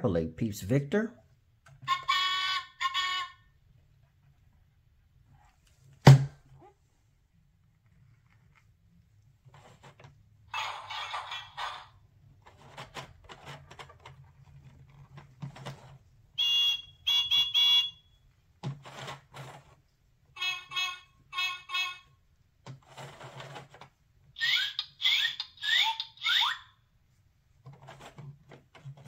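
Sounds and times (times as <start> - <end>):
plastic gears clicking and rattling: 12.4 - 16.0, 22.7 - 24.0, 27.6 - 29.0.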